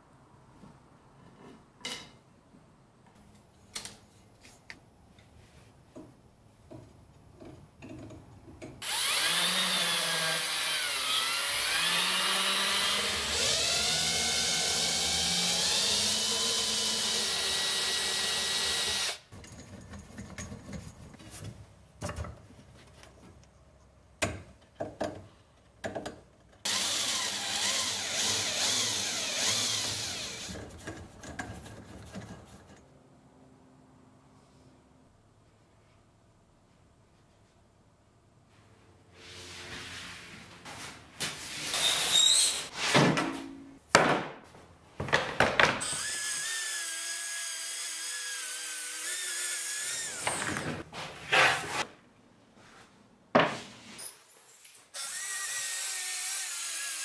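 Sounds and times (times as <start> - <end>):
cordless drill boring into steel: 8.8 - 19.2, 26.7 - 30.5, 45.9 - 50.4.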